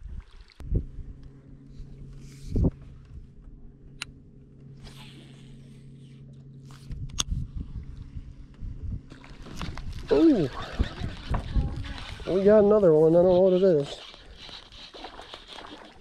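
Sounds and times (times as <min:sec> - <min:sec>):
electric motor humming: 0:01.0 - 0:08.7, 0:09.8 - 0:16.0
fishing line hissing out: 0:04.8 - 0:06.2
fishing reel clicks: 0:10.4 - 0:16.0.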